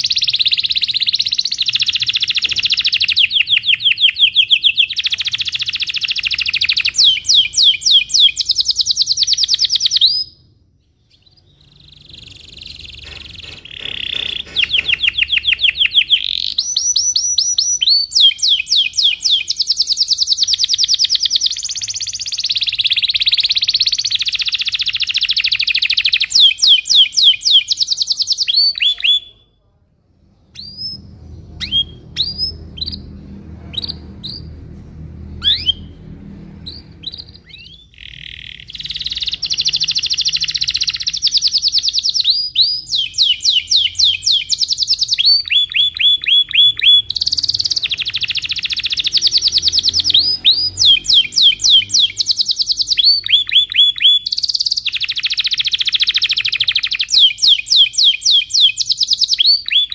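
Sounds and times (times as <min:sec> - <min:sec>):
canary singing trills: 0:00.0 - 0:29.6, 0:30.3 - 0:59.9
faint low rumble: 0:29.6 - 0:39.7.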